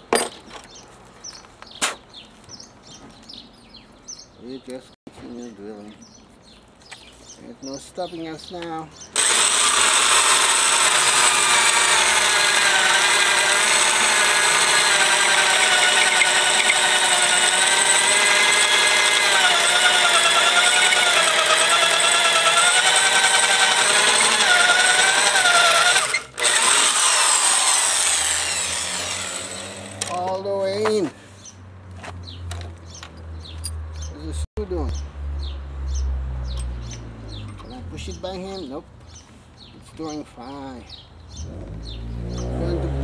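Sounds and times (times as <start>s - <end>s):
electric drill whining: 9.2s - 30.1s.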